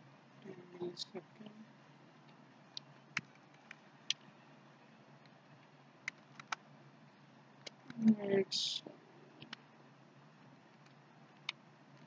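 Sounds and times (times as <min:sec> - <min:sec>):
faint steady hum: 0:00.0 - 0:12.0
keyboard keys clicking: 0:06.0 - 0:06.6.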